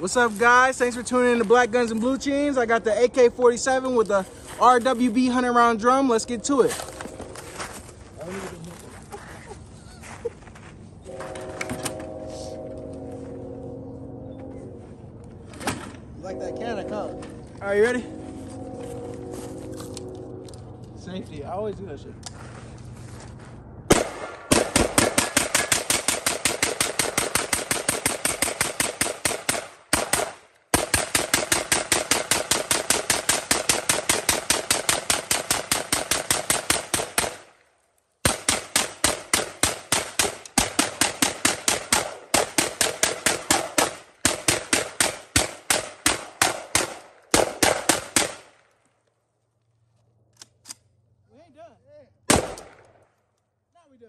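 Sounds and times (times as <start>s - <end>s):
rifle firing rapid shots: 23.9s - 37.5s, 38.2s - 48.5s, 52.3s - 52.8s.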